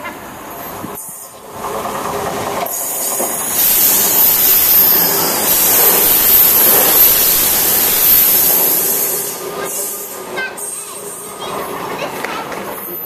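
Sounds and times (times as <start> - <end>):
train passing at speed: 0.0 - 13.0.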